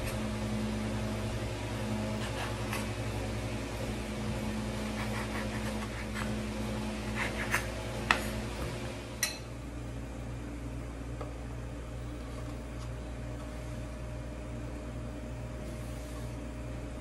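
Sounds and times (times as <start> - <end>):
steady low hum: 0.0 - 17.0
knife cutting bread: 2.1 - 3.0, 4.8 - 8.4.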